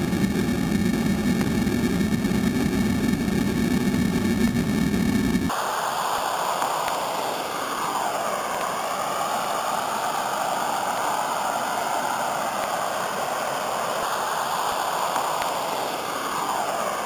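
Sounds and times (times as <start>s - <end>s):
water rushing over waterfall: 5.5s - 17.0s.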